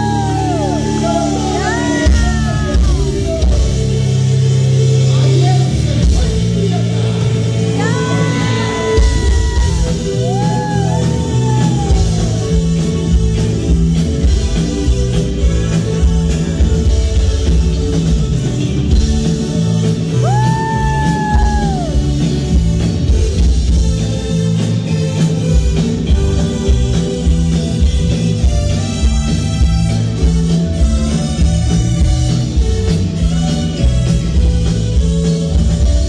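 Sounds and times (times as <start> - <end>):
man singing: 0.0 - 13.5
live rock band playing: 0.0 - 36.0.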